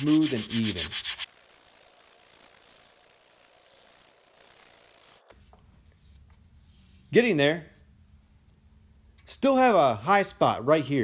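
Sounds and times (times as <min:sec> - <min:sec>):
sandpaper scratching: 0:00.0 - 0:05.5.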